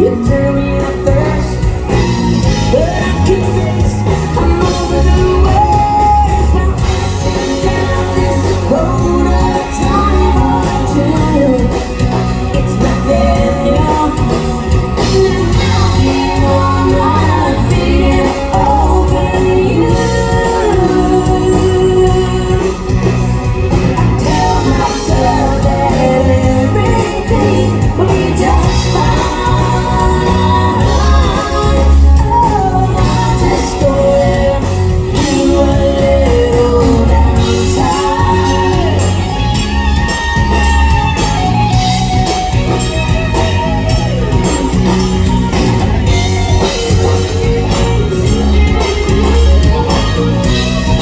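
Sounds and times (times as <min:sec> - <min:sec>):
woman singing: 0:00.0 - 0:23.2, 0:23.9 - 0:41.0
guitar: 0:00.0 - 0:51.0
live country band playing: 0:00.0 - 0:51.0.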